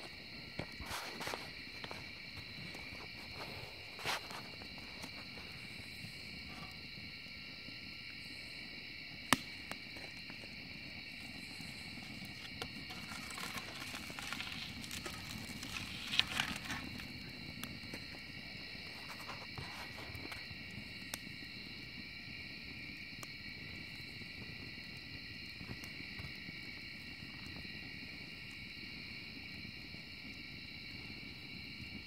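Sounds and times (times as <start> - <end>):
wood fire crackling and popping: 0.0 - 7.3, 7.9 - 32.0
insects singing: 0.1 - 22.0.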